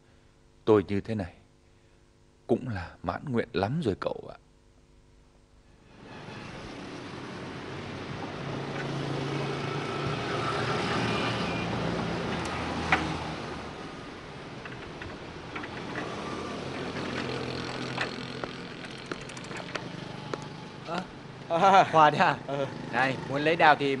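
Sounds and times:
motorbike engines passing: 6.0s - 24.0s.

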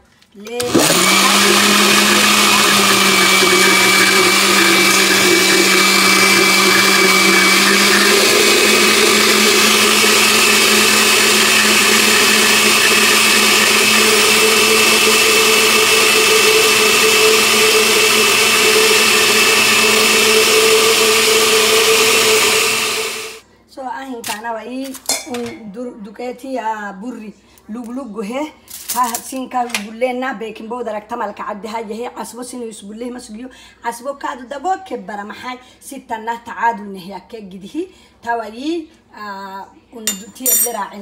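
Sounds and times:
blender whirring: 0.5s - 23.4s.

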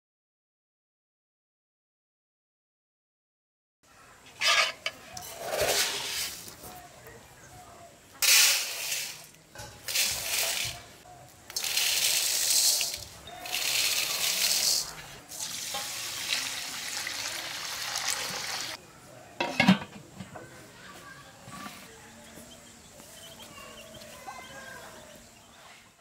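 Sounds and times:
water pouring and splashing: 8.2s - 10.8s, 11.5s - 18.8s.

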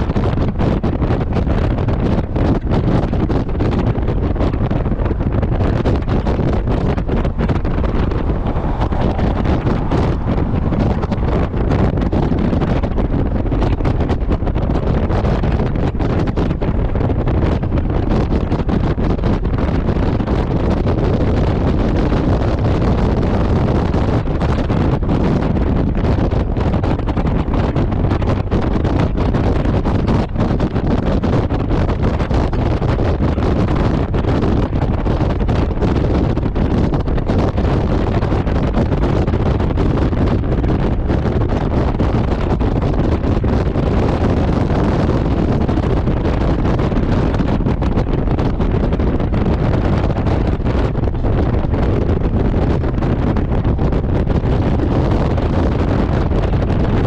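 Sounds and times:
wind buffeting microphone: 0.0s - 57.0s
motorcycle running: 1.3s - 30.8s.

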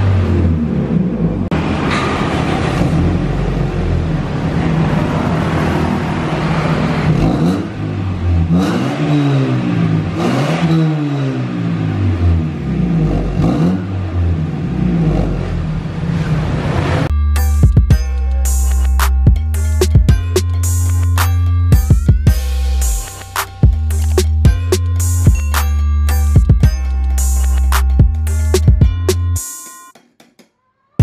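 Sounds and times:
car engine revving: 0.0s - 17.1s.

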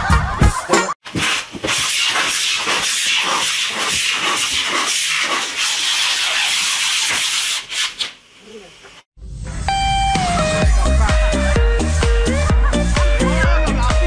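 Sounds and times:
packing tape ripping off roll: 1.0s - 8.2s.

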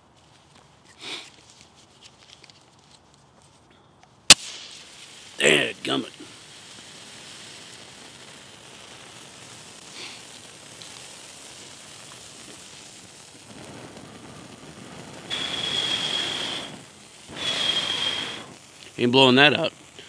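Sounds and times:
match burning with a hiss: 0.2s - 3.2s, 4.3s - 20.0s
breath blowing at a flame: 0.9s - 1.6s, 4.3s - 19.0s.

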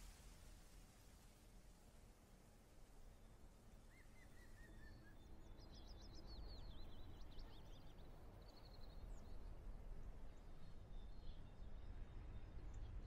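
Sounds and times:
faint birdsong chirps: 3.0s - 13.0s.

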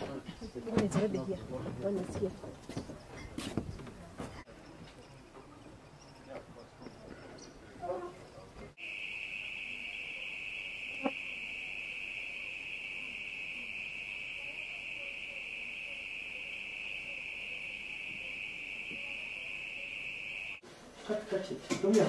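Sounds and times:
crickets trilling: 8.8s - 20.6s.

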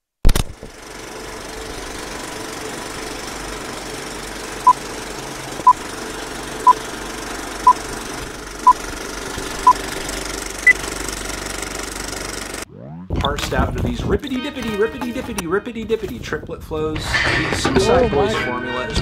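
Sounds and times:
film projector whirring and rattling: 0.3s - 12.7s.

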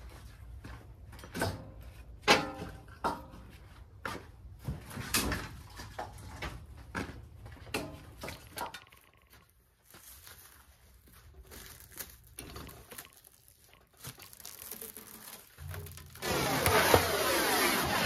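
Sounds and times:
firewood pieces knocking together: 11.9s - 17.1s.

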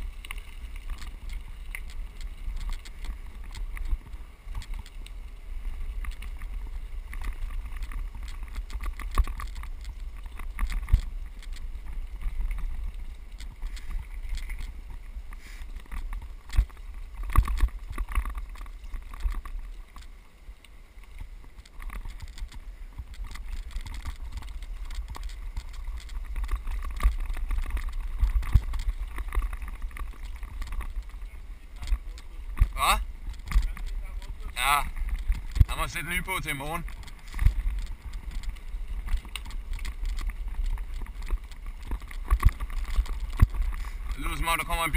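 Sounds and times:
bicycle tyres on loose gravel: 0.0s - 44.9s
wind on camera microphone: 21.2s - 44.9s.

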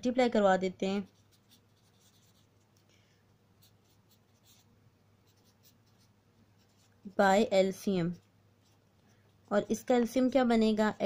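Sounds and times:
pen scratching on paper: 1.0s - 2.8s, 3.6s - 10.3s.

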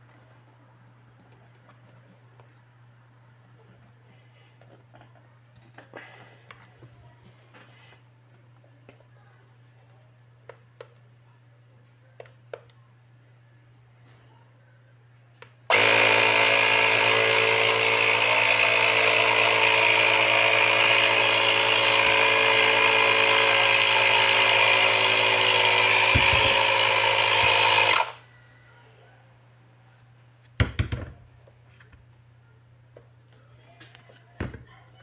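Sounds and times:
electric air compressor running: 15.7s - 28.2s.

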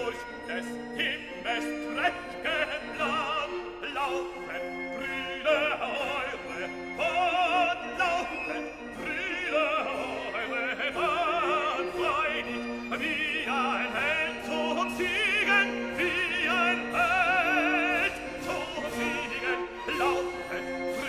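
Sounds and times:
operatic singing: 0.0s - 21.0s
orchestral accompaniment: 0.0s - 21.0s.

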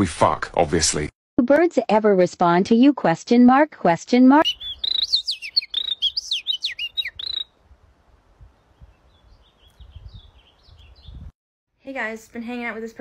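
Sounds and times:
bird chirping: 4.4s - 7.6s, 8.4s - 11.3s.

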